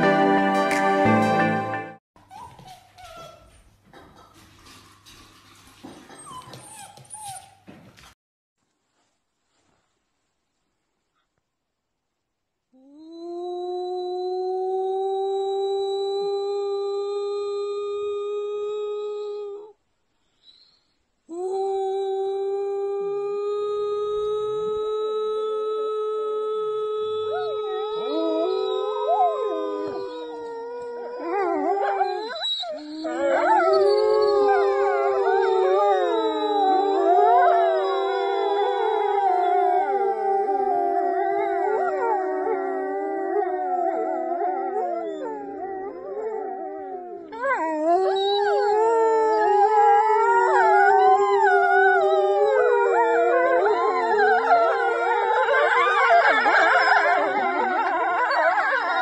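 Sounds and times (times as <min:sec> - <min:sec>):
woman howling: 0:13.1 - 0:19.8, 0:21.3 - 0:59.0
wolves howling in chorus: 0:27.2 - 0:30.5, 0:33.0 - 0:59.0.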